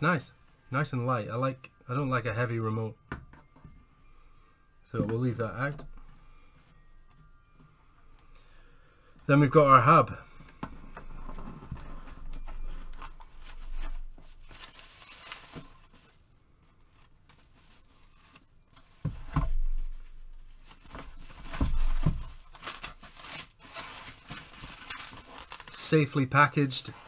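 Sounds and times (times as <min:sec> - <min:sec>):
foam wrap rustling and crinkling: 0:10.8 - 0:27.0
cardboard box handled: 0:18.8 - 0:25.6.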